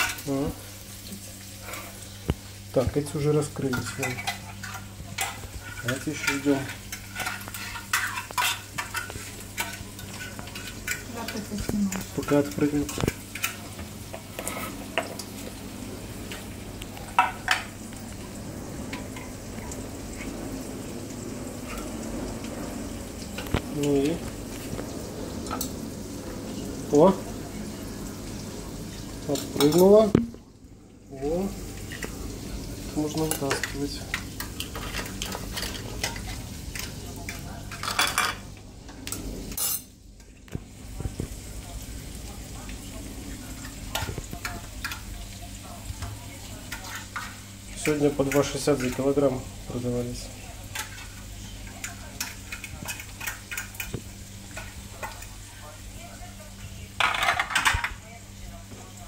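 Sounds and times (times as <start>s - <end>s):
oysters sizzling on grill: 0.0s - 59.0s
metal spoon scraping grill rack: 3.6s - 11.4s.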